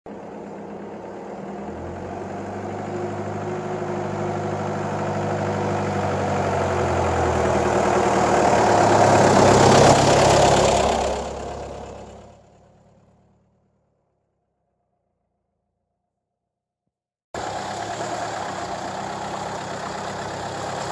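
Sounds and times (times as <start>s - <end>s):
vehicle engine driving over: 0.1s - 13.8s.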